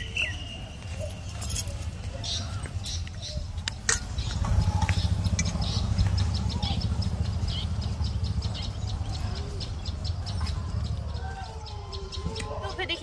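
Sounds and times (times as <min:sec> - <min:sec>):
birds chirping: 0:00.0 - 0:13.0
low steady rumble: 0:03.4 - 0:12.2.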